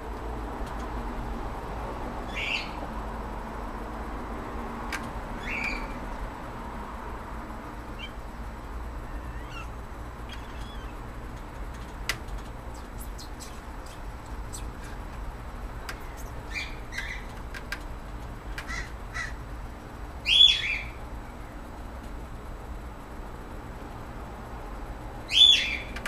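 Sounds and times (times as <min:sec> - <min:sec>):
high-pitched animal calls: 0:07.9 - 0:11.1, 0:12.7 - 0:15.1, 0:15.9 - 0:17.3, 0:18.7 - 0:19.4.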